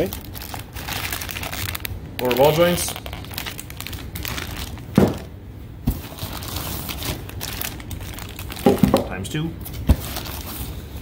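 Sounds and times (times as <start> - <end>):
plastic bags crinkling: 0.0 - 5.3, 5.9 - 9.2, 10.0 - 10.7.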